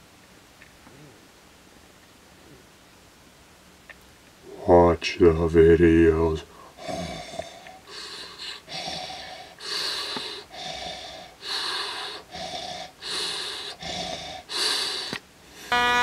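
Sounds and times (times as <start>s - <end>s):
mechanical respirator breathing: 6.5s - 15.8s.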